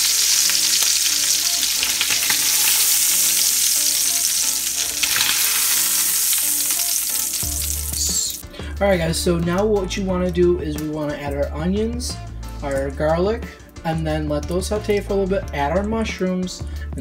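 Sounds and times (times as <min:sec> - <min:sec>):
meat sizzling in butter: 0:00.0 - 0:08.4.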